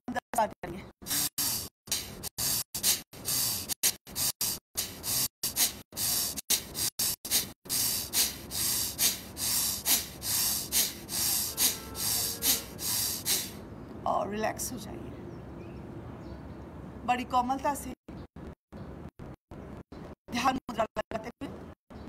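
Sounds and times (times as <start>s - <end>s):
forceful rhythmic breathing: 1.0s - 13.7s.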